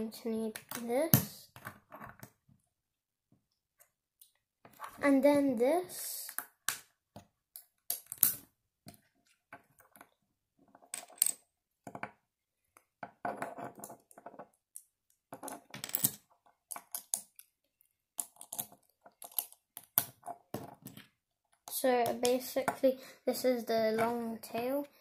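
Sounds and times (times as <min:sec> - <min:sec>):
plastic bricks clicking together: 0:14.8 - 0:17.5, 0:18.2 - 0:20.3.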